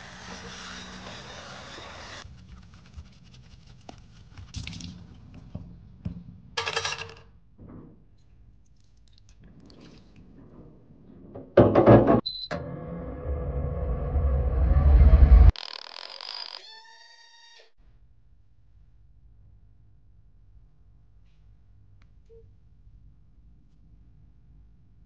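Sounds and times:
plastic clattering in metal tray: 0:06.6 - 0:07.3.

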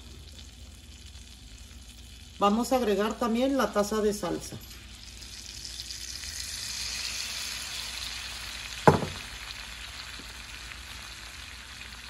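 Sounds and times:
sauce sizzling in a pan: 0:00.0 - 0:12.0
sharp knock: 0:08.9 - 0:09.2.

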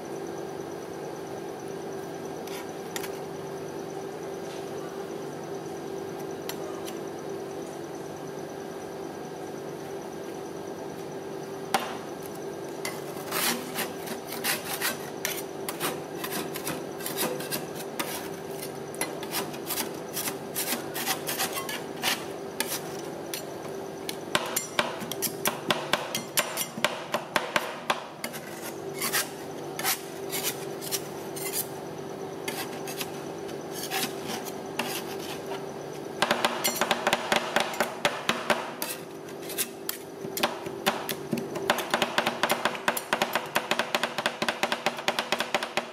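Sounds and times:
steady hum: 0:00.0 - 0:45.9
metal spatulas chopping and scraping: 0:12.9 - 0:23.5, 0:24.4 - 0:31.7, 0:32.5 - 0:35.6, 0:36.3 - 0:43.8.

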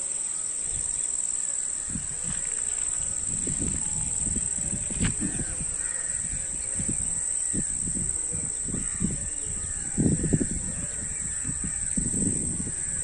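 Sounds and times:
high-pitched insect trill: 0:00.0 - 0:13.0
low thumps on microphone: 0:03.3 - 0:08.1
crows cawing faintly: 0:05.1 - 0:07.8, 0:08.6 - 0:13.0.

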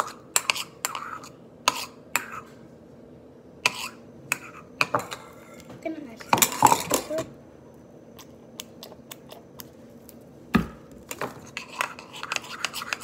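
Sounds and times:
spoon stirring slime in bowl: 0:00.0 - 0:02.6, 0:03.6 - 0:07.3, 0:11.0 - 0:13.0.

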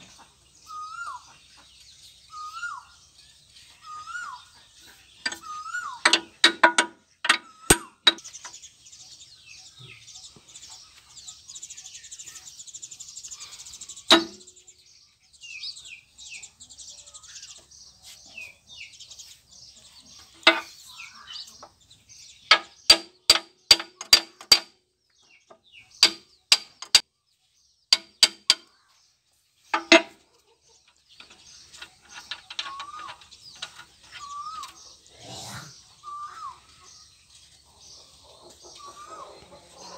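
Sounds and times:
birds chirping: 0:00.0 - 0:39.9
tool tapping on metal: 0:05.2 - 0:08.3, 0:14.1 - 0:14.5, 0:20.4 - 0:20.8, 0:22.5 - 0:24.8, 0:25.5 - 0:27.0, 0:27.9 - 0:28.7, 0:29.7 - 0:30.2, 0:31.2 - 0:34.3.

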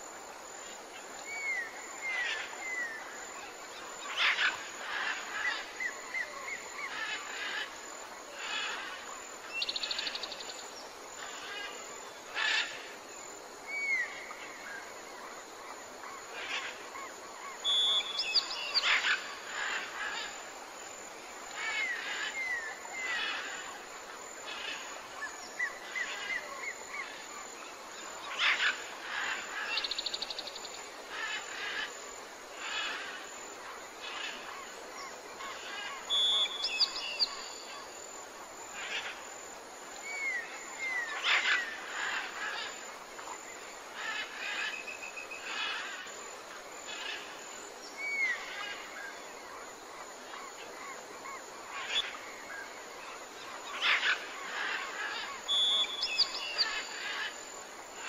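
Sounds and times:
background hiss: 0:00.0 - 0:58.0
birds chirping and trilling: 0:17.5 - 0:20.4, 0:34.0 - 0:37.9, 0:40.0 - 0:42.8, 0:43.4 - 0:46.1, 0:46.9 - 0:49.3, 0:50.3 - 0:57.5.

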